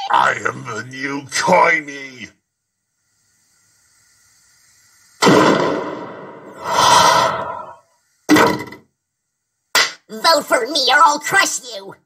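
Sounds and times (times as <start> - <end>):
short sharp burst: 5.2 - 7.8.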